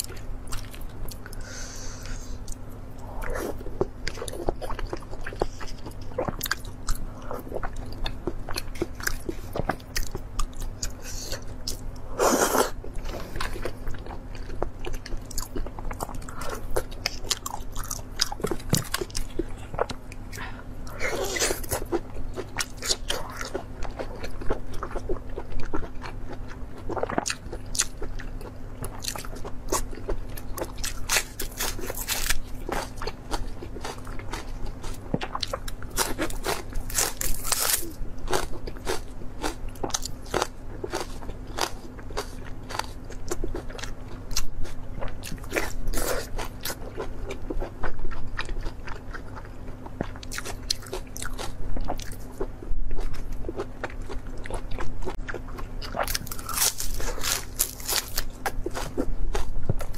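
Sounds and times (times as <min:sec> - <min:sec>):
crunchy chewing: 0:00.0 - 0:59.9.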